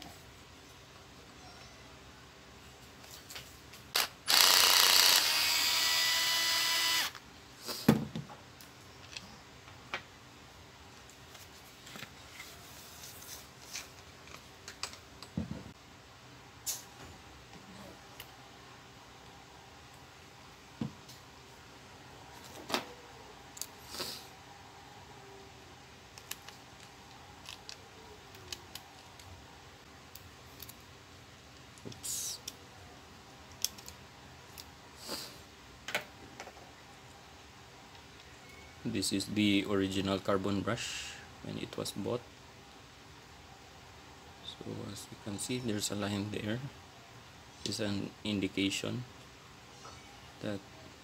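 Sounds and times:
cordless screwdriver whine: 0:04.0 - 0:07.2.

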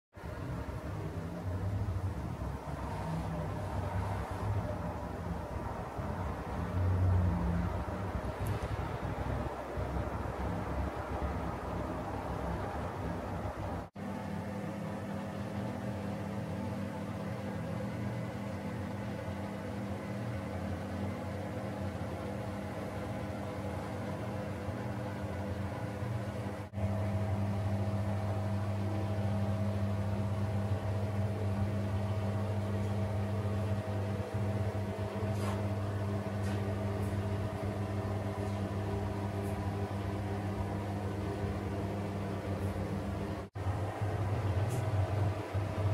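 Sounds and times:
extractor fan humming: 0:00.1 - 0:45.9.

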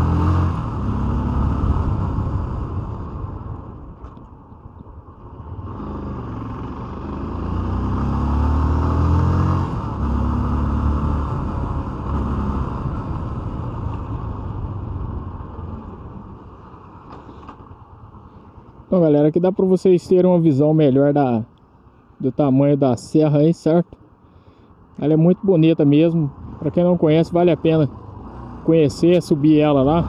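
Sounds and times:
motorcycle engine accelerating: 0:00.0 - 0:04.1, 0:05.0 - 0:17.8, 0:27.6 - 0:30.0.

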